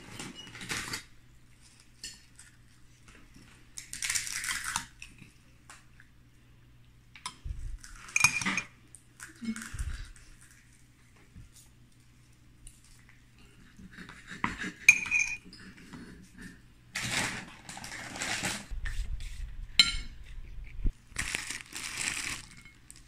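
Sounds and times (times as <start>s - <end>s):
metal spoon scraping plate: 14.8s - 15.5s
sharp ringing spoon clinks: 14.9s - 15.4s.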